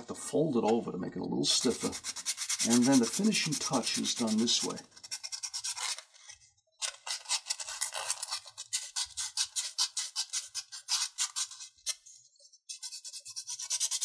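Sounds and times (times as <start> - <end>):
sandpaper rubbing on paper: 1.5 - 6.1, 7.0 - 12.0, 12.7 - 14.0.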